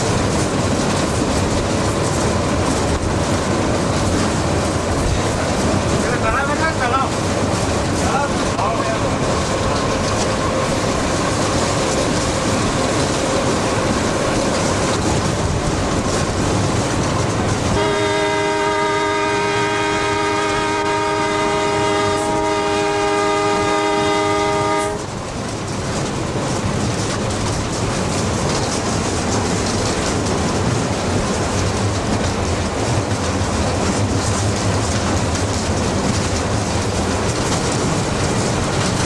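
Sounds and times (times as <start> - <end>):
train rumble and rattle: 0.0 - 39.0
locomotive horn blast: 17.7 - 25.1.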